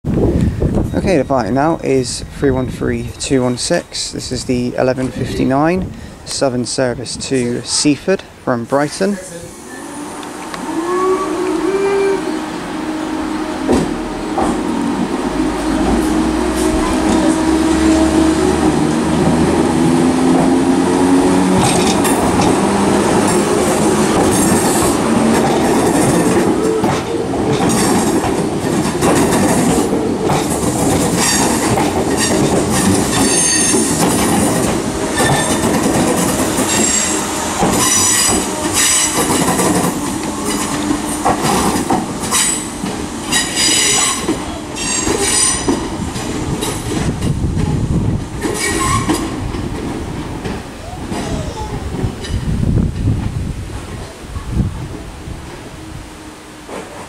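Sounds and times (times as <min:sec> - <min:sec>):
wheels squealing on rails: 0:09.3 - 0:19.2, 0:21.2 - 0:47.1, 0:48.4 - 0:49.5.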